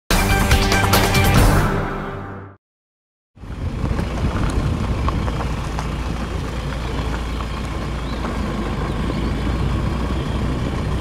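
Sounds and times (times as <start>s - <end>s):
car tyres rumbling on gravel: 3.4s - 11.0s
stones clicking under wheels: 3.5s - 9.3s.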